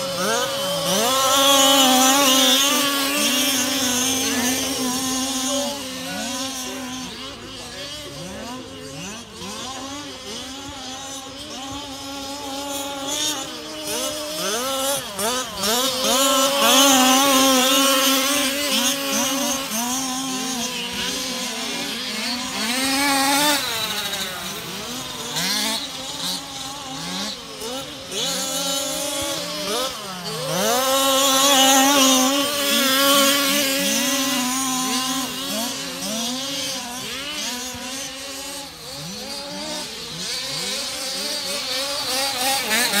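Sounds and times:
rc car engines revving: 0.0 - 43.0.

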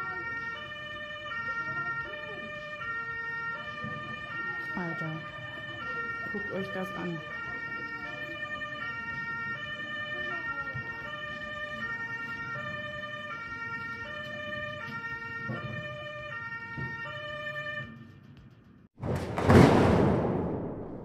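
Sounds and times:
ambulance two-tone siren: 0.0 - 18.2.

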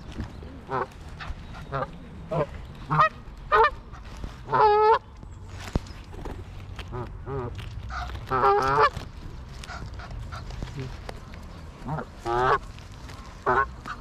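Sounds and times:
geese honking: 0.6 - 5.0, 6.9 - 9.0, 11.8 - 12.7, 13.4 - 14.0.

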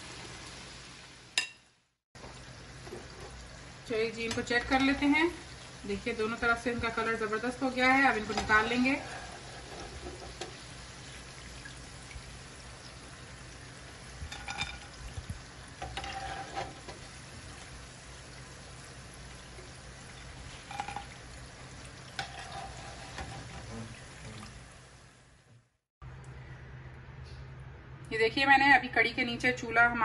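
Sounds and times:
food sizzling in hot oil: 0.0 - 25.3
metal spoon scraping pan: 8.1 - 10.5, 15.8 - 17.0, 22.2 - 23.7.

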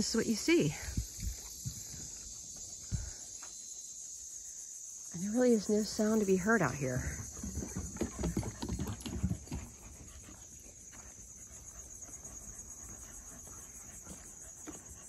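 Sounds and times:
insect chorus: 0.0 - 15.0
footsteps on wooden boardwalk: 7.0 - 15.0.

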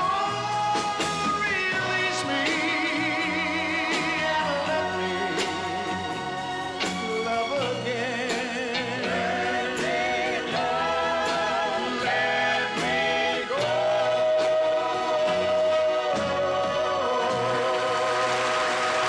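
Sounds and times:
man singing pop ballad: 0.0 - 6.0, 6.9 - 10.0
backing band: 0.0 - 19.0.

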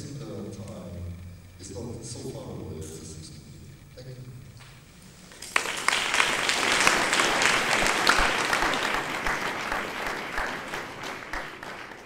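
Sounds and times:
audience applauding: 5.2 - 12.0.

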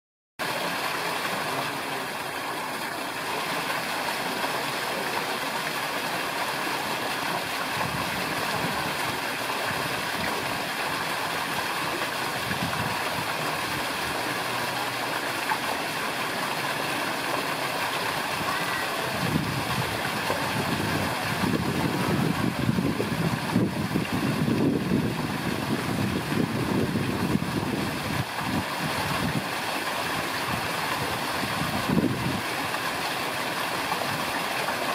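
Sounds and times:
wind buffeting microphone: 12.4 - 13.3, 19.1 - 29.5, 30.5 - 32.4.

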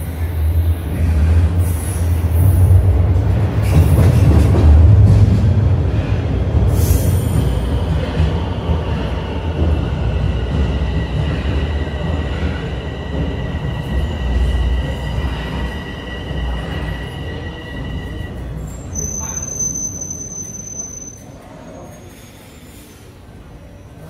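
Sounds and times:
subway train wheels rumbling: 0.0 - 24.0
two-tone brake squeal: 14.0 - 23.0.

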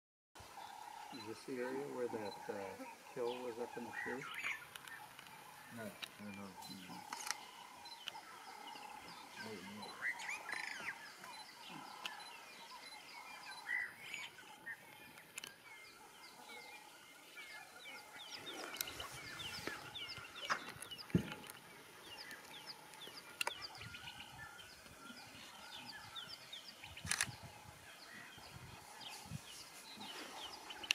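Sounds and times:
birds chirping and calling: 0.4 - 30.9
sharp clicks: 7.0 - 8.2, 27.0 - 27.4.

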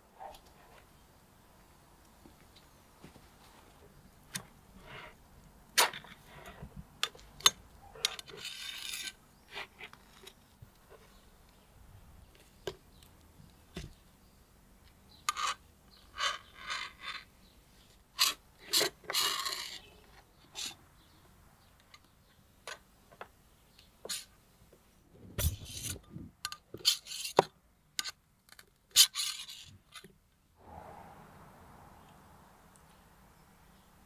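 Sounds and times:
cleaver scraping metal skewers: 7.4 - 10.4.

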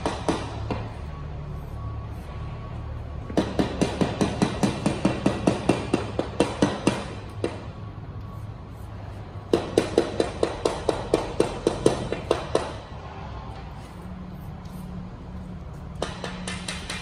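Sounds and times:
steel rod tapping on concrete: 15.8 - 17.0.

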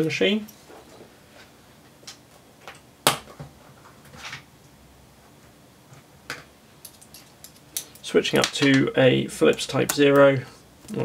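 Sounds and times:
tools rattling: 6.8 - 8.8.

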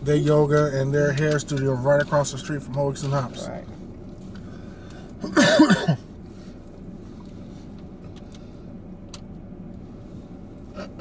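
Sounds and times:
steady low hum: 0.0 - 11.0
person cough-like vocal burst: 5.2 - 6.0.

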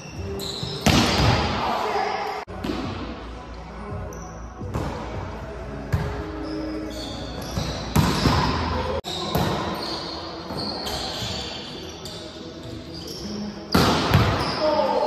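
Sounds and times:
sneakers squeaking on court: 0.0 - 1.6, 3.9 - 5.2, 5.8 - 14.8.

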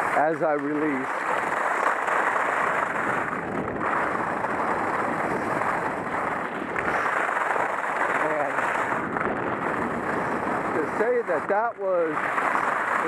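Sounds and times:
skis sliding over snow: 0.0 - 13.0
wind on microphone: 0.8 - 13.0.

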